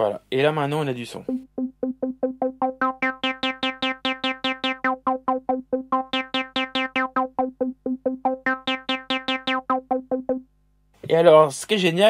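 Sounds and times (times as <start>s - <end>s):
synthesizer acid bassline: 1.3s - 10.4s.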